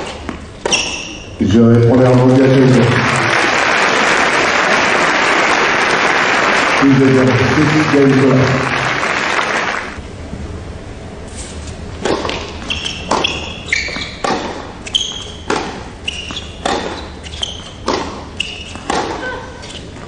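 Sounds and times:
shoe squeaks on court: 0.0 - 1.4, 12.3 - 20.0
applause: 2.2 - 10.0
tennis ball struck by rackets: 12.0 - 13.5, 14.1 - 17.0, 17.8 - 19.2.

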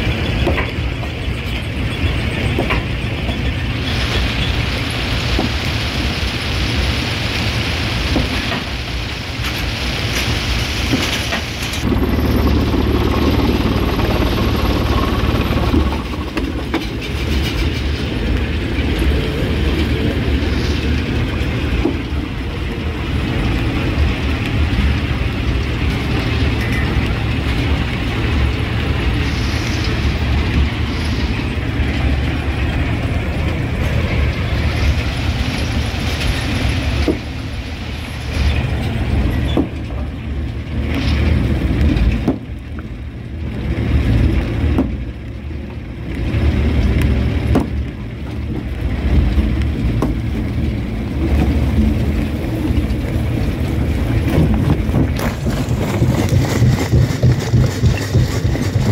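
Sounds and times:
rock crusher rumbling: 8.0 - 58.9
rocks clattering and cracking: 47.0 - 58.9.

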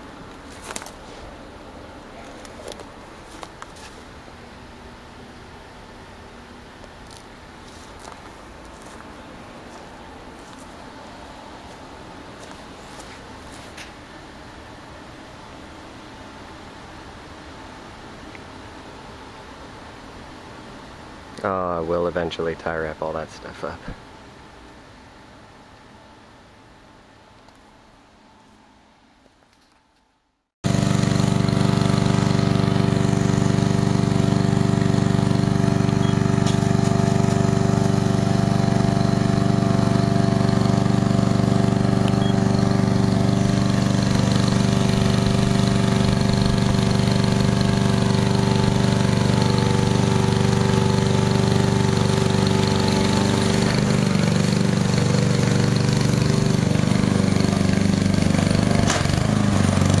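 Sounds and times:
small lawnmower engine running: 30.6 - 60.0.

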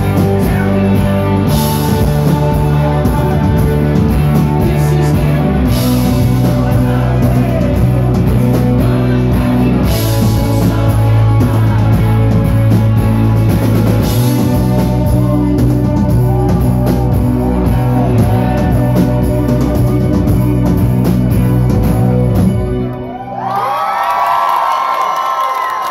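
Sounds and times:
person singing: 0.0 - 22.5
drum kit: 0.0 - 23.1
bass guitar: 0.0 - 23.8
electric guitars: 0.0 - 23.8
crowd cheering and whistling: 14.1 - 19.6, 20.8 - 25.9.

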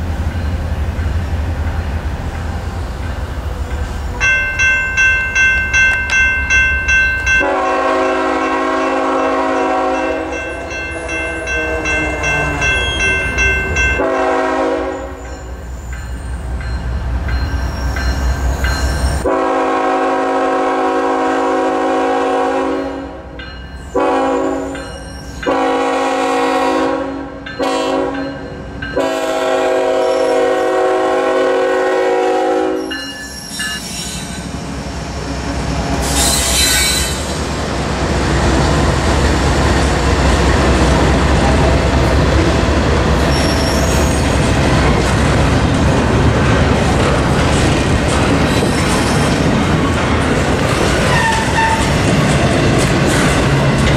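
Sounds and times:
locomotive engine and wheel noise: 0.0 - 19.3, 32.8 - 53.9
locomotive air horn blasts: 7.4 - 13.0, 14.0 - 15.2, 19.2 - 23.2, 23.9 - 24.8, 25.5 - 28.2, 29.0 - 32.9.

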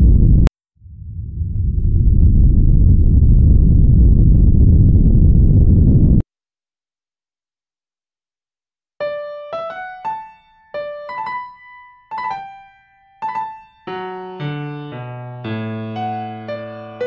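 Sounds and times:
piano-like keyboard melody: 9.0 - 17.0.

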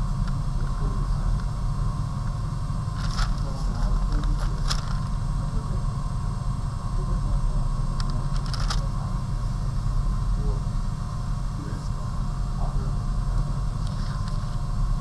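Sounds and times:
low background hum: 0.0 - 15.0
tracing paper rustling: 3.0 - 5.1, 8.4 - 8.9.

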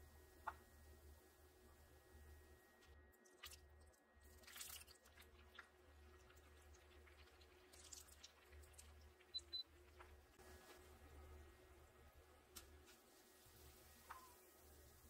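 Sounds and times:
low steady hum: 0.0 - 15.0
food deep-frying in oil: 2.9 - 15.0.

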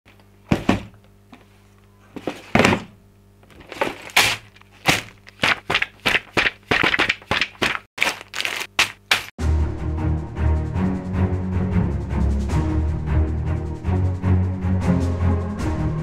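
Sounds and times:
booklet pages flapping: 3.5 - 9.3.

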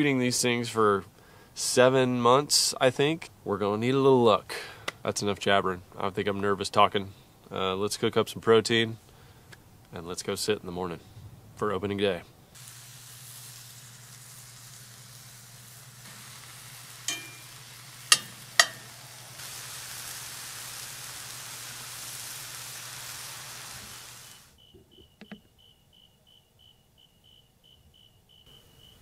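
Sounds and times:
low steady hum: 7.0 - 19.4
meat sizzling in a skillet: 12.6 - 24.6
insect chirps: 23.4 - 29.0.

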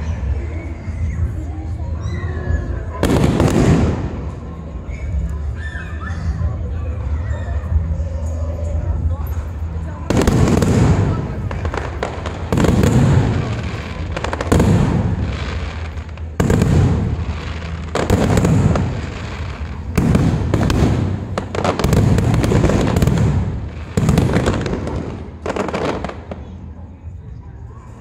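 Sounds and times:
fireworks crackling: 2.7 - 5.5, 9.6 - 26.8.

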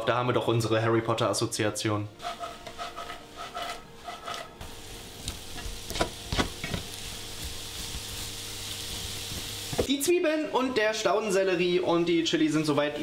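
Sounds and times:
spatula stirring and scraping: 2.2 - 9.9
vegetables sizzling in a pan: 4.6 - 9.9.

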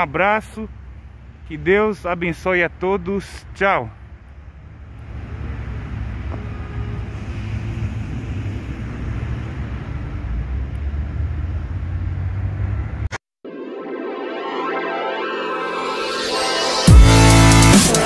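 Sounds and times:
coach diesel engine rumbling: 0.0 - 13.1.

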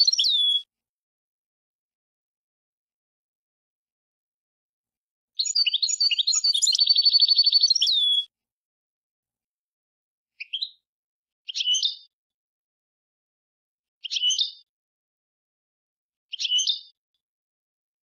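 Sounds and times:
finch singing: 0.0 - 0.7, 5.4 - 8.3, 11.5 - 12.1, 14.0 - 14.6, 16.3 - 16.9
short bird calls: 0.0 - 0.7, 5.4 - 8.3.

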